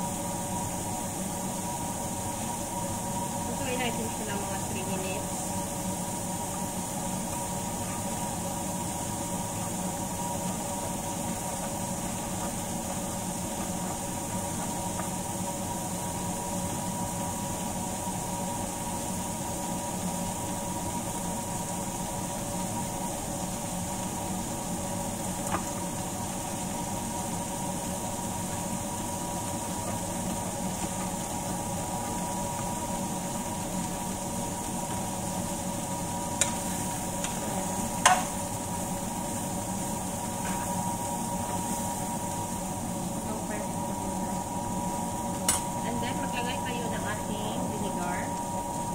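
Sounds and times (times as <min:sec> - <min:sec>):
fish hissing in a pan: 0:05.1 - 0:43.4.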